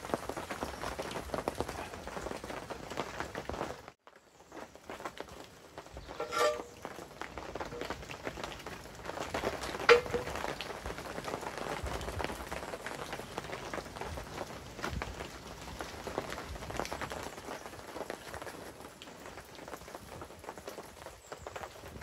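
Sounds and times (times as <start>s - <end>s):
metal grill grate clanking: 6.1s - 6.9s, 9.9s - 10.4s.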